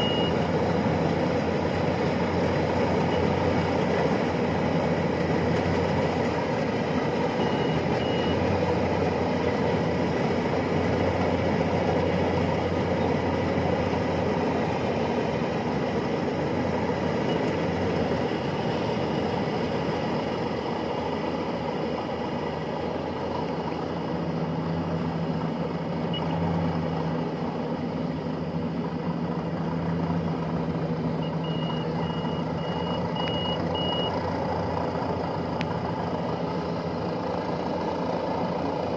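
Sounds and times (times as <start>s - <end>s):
combine harvester engine drone: 0.0s - 38.9s
high electronic beeper: 31.2s - 34.1s.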